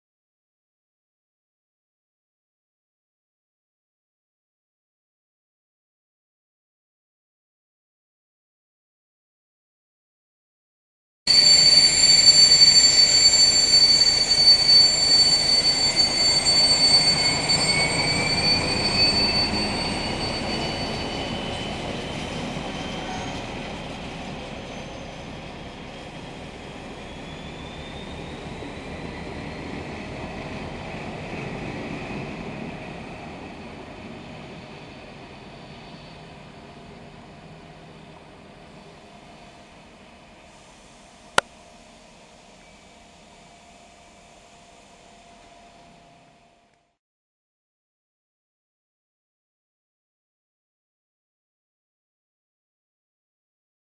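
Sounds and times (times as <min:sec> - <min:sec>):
rising whine: 0:11.3 - 0:30.0
high-pitched wheel squeal: 0:11.3 - 0:37.0
diesel locomotive hauling train: 0:11.3 - 0:46.8.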